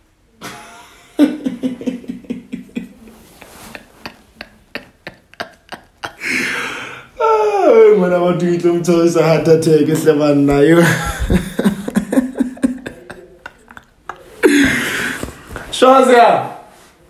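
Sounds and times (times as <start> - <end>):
man laughing: 0.4 - 6.6, 10.7 - 15.6
long wheezing breath: 6.2 - 7.2.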